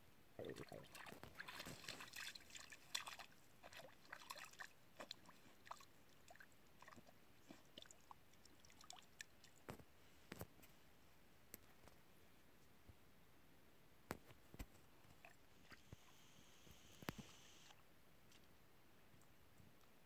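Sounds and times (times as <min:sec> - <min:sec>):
faint ticks and drips: 0:00.4 - 0:10.7, 0:14.1 - 0:20.0
dog paws splashing in water: 0:00.9 - 0:08.0.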